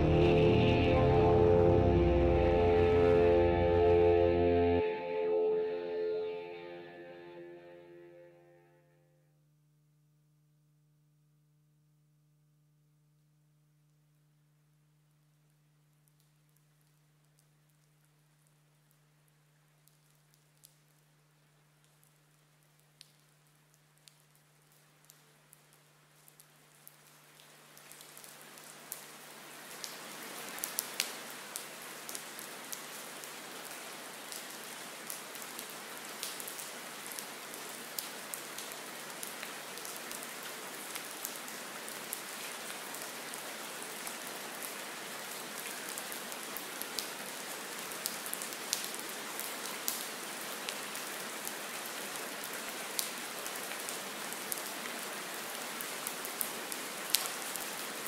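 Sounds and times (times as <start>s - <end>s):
rain-like hiss with ticks: 14.8s - 58.0s.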